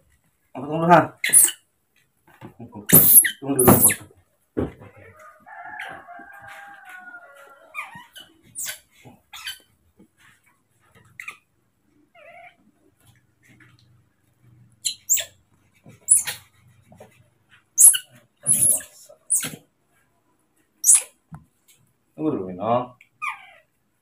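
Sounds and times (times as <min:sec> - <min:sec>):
baby monkeys squealing: 0:01.2 - 0:01.6, 0:02.9 - 0:04.0, 0:07.7 - 0:09.7, 0:14.8 - 0:15.4, 0:16.0 - 0:16.5, 0:17.8 - 0:19.6, 0:20.8 - 0:21.1.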